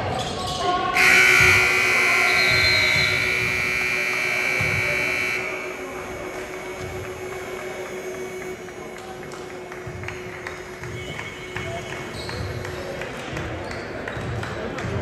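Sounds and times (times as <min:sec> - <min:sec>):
scoreboard buzzer blast: 0:01.0 - 0:12.8.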